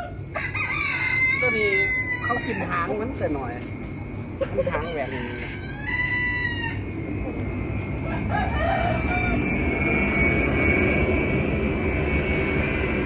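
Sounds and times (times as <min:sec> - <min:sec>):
rooster crowing: 0:00.0 - 0:03.1, 0:04.5 - 0:07.1, 0:07.9 - 0:10.4
motor drone with high whine: 0:00.0 - 0:13.0.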